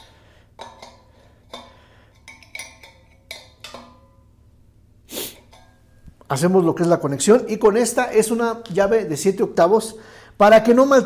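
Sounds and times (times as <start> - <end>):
wrench clinking on metal: 0.6 - 4.2.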